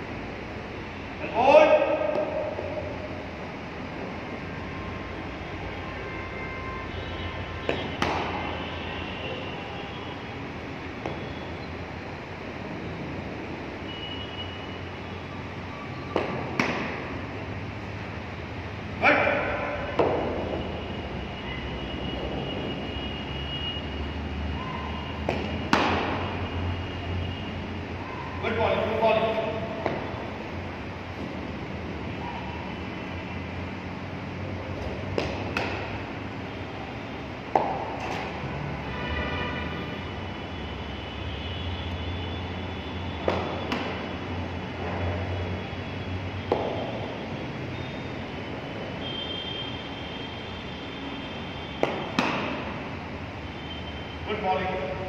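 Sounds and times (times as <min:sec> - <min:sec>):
steady background hum: 0:00.0 - 0:55.0
ball smacking into gloves: 0:07.7 - 0:08.4, 0:16.2 - 0:17.0, 0:25.2 - 0:26.2, 0:35.1 - 0:35.9, 0:43.2 - 0:44.0, 0:51.8 - 0:52.6
ball thudding into gloves: 0:07.7 - 0:08.4, 0:25.3 - 0:26.2
ball pitching on turf: 0:07.7 - 0:08.5, 0:16.1 - 0:17.2, 0:19.9 - 0:20.6, 0:25.2 - 0:26.3, 0:34.8 - 0:36.0, 0:37.4 - 0:38.4, 0:43.2 - 0:44.2, 0:46.4 - 0:46.9, 0:51.8 - 0:52.8.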